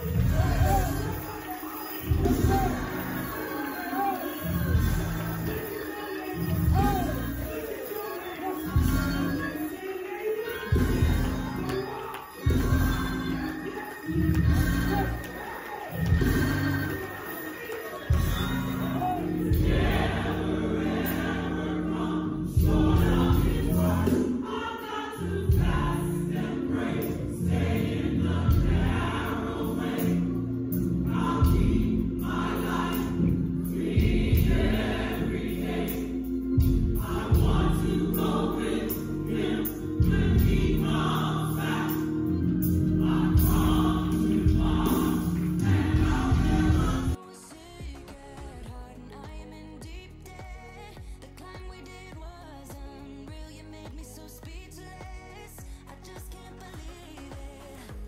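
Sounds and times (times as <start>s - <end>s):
gospel choir singing: 0.0s - 48.8s
instrumental accompaniment with bass: 2.0s - 5.8s, 6.4s - 7.5s, 10.8s - 15.4s, 18.1s - 24.4s, 25.2s - 47.2s.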